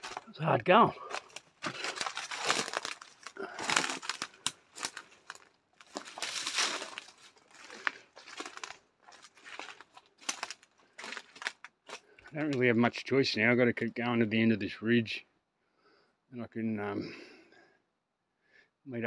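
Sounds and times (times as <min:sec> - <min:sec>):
footsteps crunching through dry leaves: 0:01.0 - 0:12.0
twigs snapping underfoot: 0:01.1 - 0:12.5.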